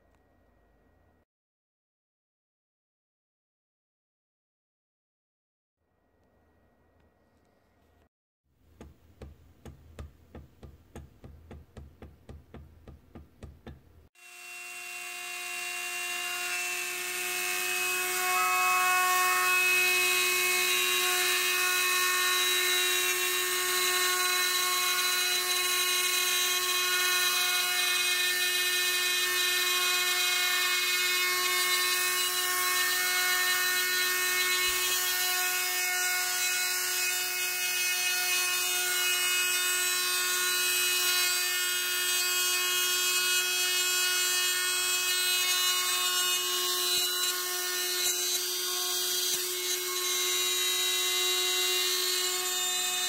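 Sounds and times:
rotary tool cutting wood: 14.2s - 53.0s.

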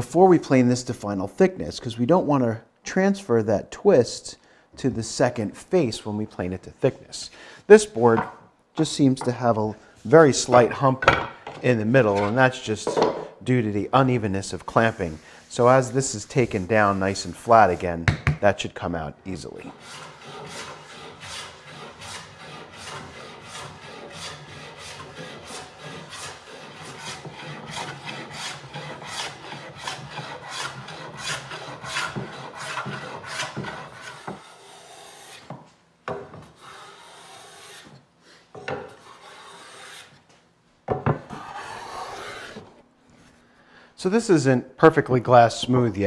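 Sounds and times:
hand plane shaving wood: 19.6s - 35.5s, 36.5s - 38.0s, 38.9s - 40.1s, 41.3s - 42.7s.

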